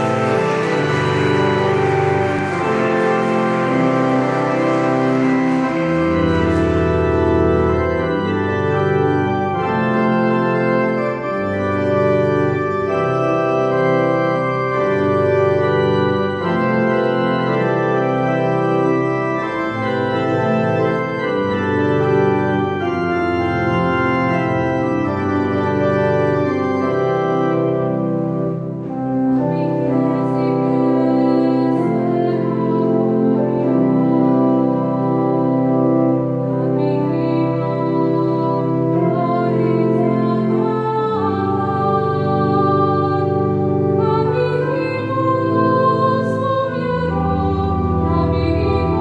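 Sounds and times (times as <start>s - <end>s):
pipe organ playing chords: 0.0s - 49.0s.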